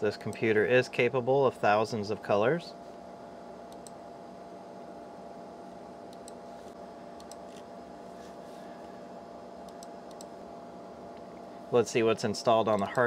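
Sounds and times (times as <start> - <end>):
computer cooling fan humming: 0.0 - 13.0
faint mouse clicks: 3.7 - 4.0, 6.1 - 6.4, 9.7 - 10.3.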